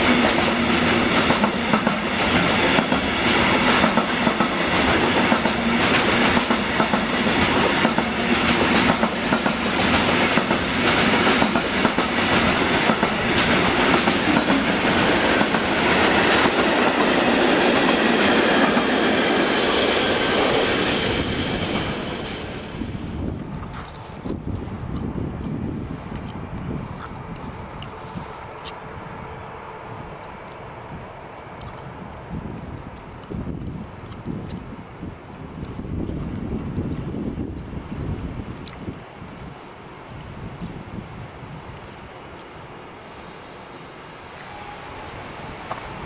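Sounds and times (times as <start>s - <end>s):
wheels clacking over rail joints: 0.0s - 28.9s
freight train wagons rolling: 0.0s - 46.0s.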